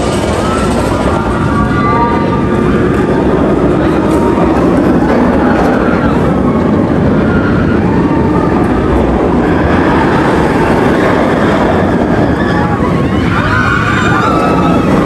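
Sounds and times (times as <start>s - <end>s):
passenger train rumbling: 0.0s - 15.0s.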